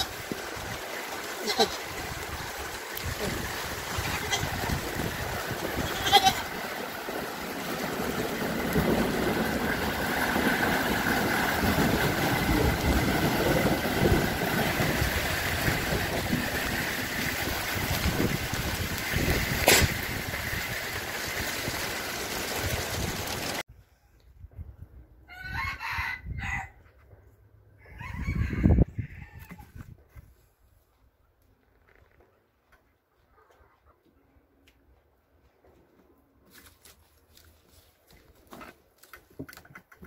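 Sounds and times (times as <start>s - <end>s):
hail and rain falling: 0.0s - 23.6s
goat bleating: 1.4s - 1.8s, 4.0s - 4.6s, 5.8s - 6.5s.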